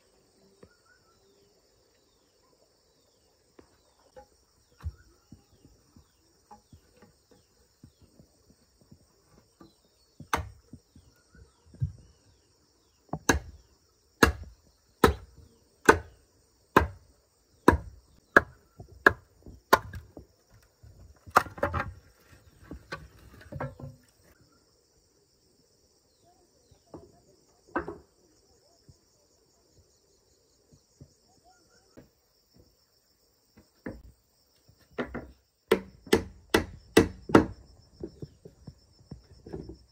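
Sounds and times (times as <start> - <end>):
insects trilling: 0.0 - 39.9
machete chopping bamboo: 10.3 - 10.6, 13.2 - 17.0, 17.6 - 20.1, 21.3 - 21.9, 35.0 - 37.6.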